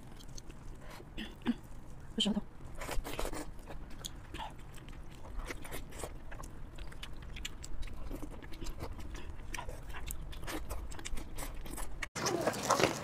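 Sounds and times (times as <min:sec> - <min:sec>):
wet chewing and biting: 0:02.6 - 0:13.0.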